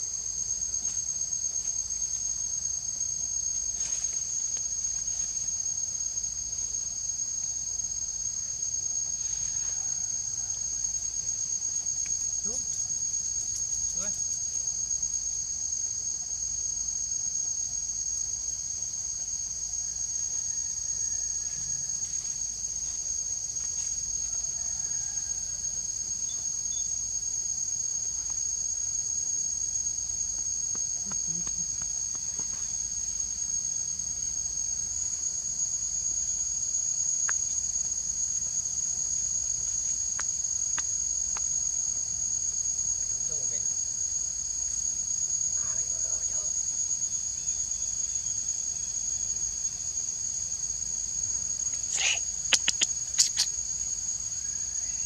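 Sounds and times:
insects chorus: 0.0s - 55.0s
faint ticks: 37.2s - 37.6s, 40.1s - 41.5s, 51.8s - 53.6s.

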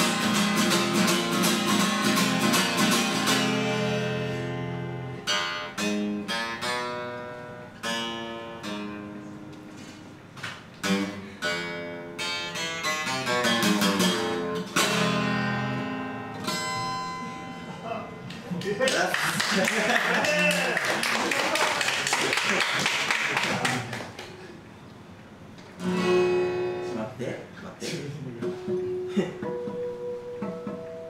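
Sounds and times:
acoustic guitar strumming: 0.0s - 18.4s, 25.4s - 27.1s, 28.4s - 31.0s.

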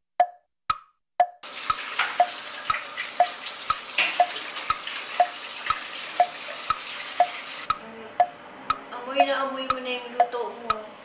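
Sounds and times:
wood-block beat music: 0.2s - 10.4s
water running at sink: 1.4s - 7.8s.

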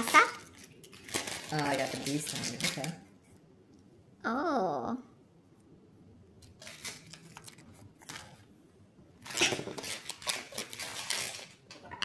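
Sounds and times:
packaging rustling: 0.0s - 3.0s, 6.4s - 8.5s, 9.2s - 11.8s.

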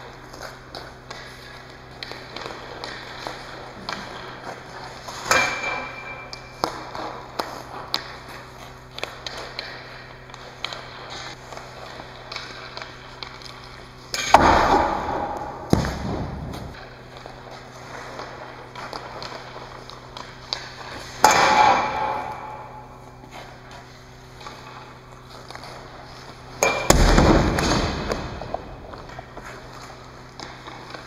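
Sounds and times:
hockey stick shot crack: 0.4s - 31.0s
puck ringing off metal goal frame: 5.2s - 6.7s, 21.2s - 22.9s, 26.6s - 28.2s.

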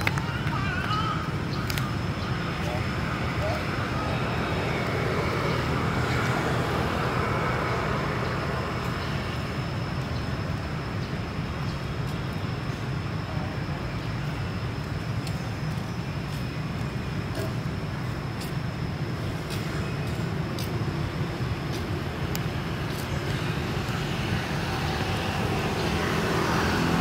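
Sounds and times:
light ticks: 14.8s - 16.4s.

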